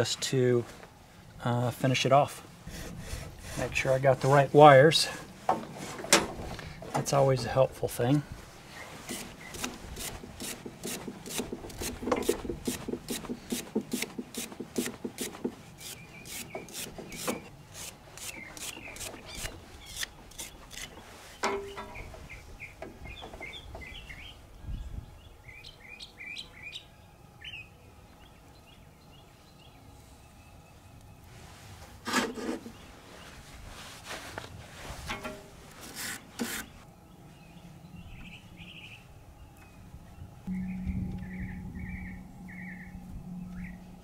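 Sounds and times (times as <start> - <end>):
small birds chirping: 8.7 - 31.3, 36.6 - 44.0
rustling knock: 9.2 - 15.6.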